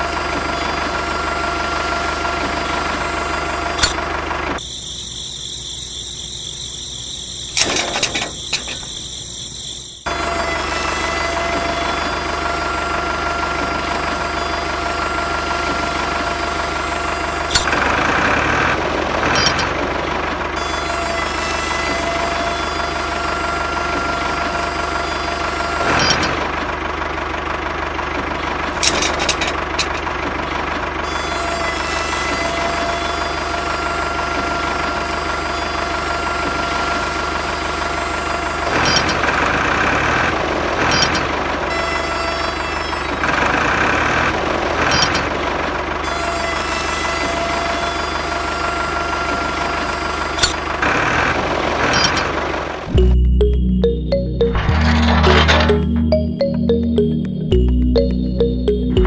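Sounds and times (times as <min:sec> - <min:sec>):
tractor engine idling: 0:00.0 - 0:04.6, 0:11.0 - 0:31.0, 0:47.5 - 0:59.0.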